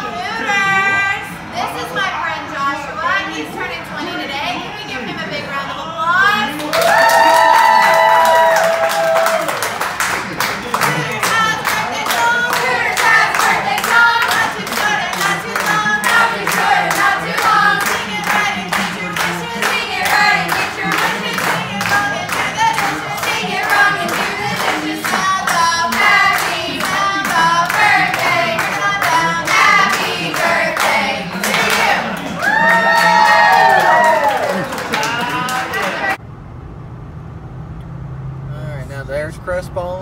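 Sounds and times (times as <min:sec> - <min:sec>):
hands clapping: 0:06.6 - 0:36.2
women singing in unison: 0:11.1 - 0:32.2.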